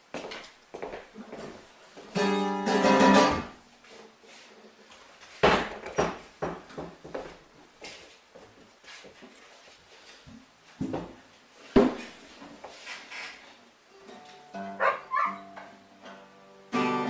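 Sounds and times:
acoustic guitar strum: 0:02.1 - 0:03.6, 0:14.0 - 0:17.0.

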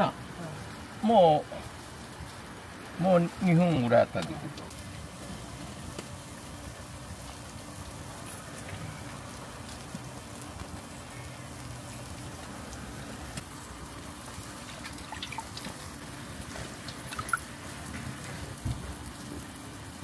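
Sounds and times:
skewers sizzling on a grill: 0:00.0 - 0:20.0
sauce dripping: 0:14.0 - 0:17.6.

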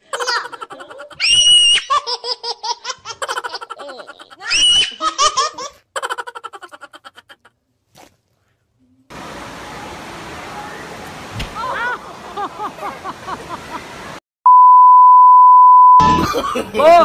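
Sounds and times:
small child laughing: 0:00.0 - 0:07.6.

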